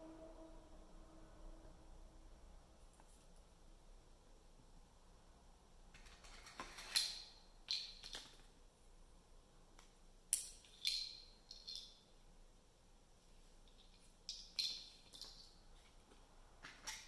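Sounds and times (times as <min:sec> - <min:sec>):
magnet clinking on metal ring: 0:10.3 - 0:12.1.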